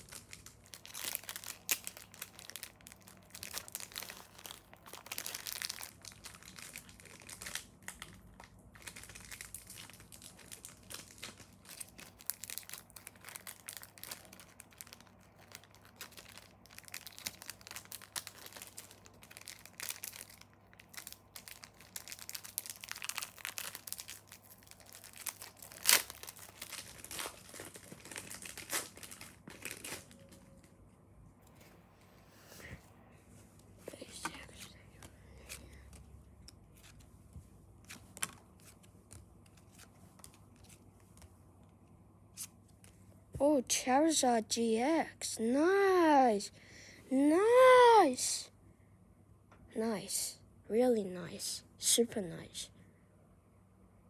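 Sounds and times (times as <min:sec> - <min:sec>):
foil wrapper crinkling and tearing: 0:00.0 - 0:30.6.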